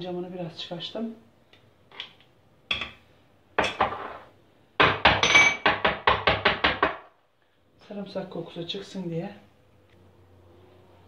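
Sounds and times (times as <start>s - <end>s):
glass jar knocking and clinking: 4.9s - 5.9s.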